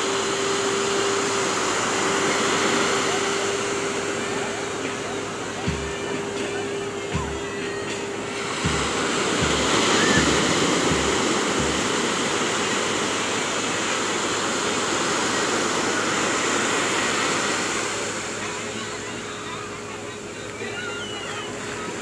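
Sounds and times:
surf breaking on beach: 0.0 - 22.0
short low thumps: 8.6 - 12.1.

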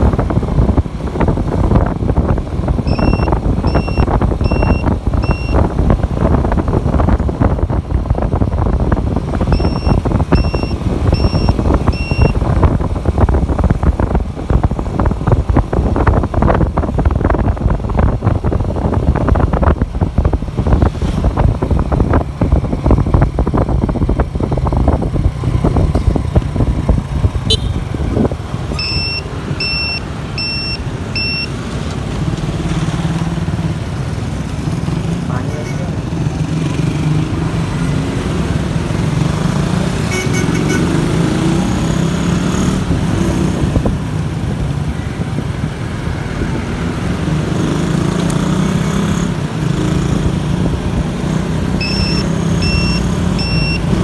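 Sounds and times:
motorcycle engine hum: 0.0 - 54.0
wind and road rush: 0.0 - 54.0
short high electronic beeps: 2.9 - 5.6, 9.5 - 12.4, 28.8 - 31.5, 51.8 - 53.9.

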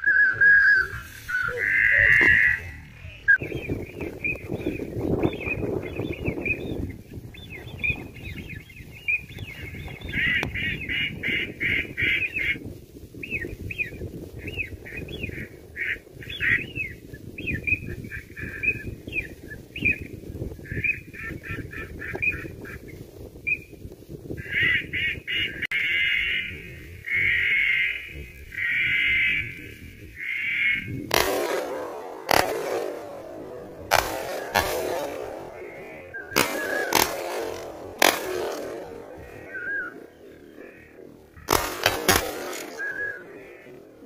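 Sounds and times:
ducks quacking: 0.7 - 3.4, 9.5 - 12.6, 14.9 - 16.8, 20.6 - 22.9, 24.4 - 44.0.

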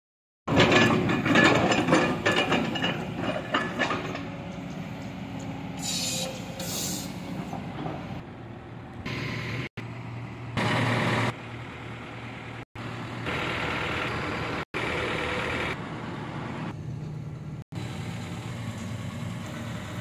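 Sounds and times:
excavator tracks clanking: 0.5 - 8.2
short hisses: 5.8 - 7.2.

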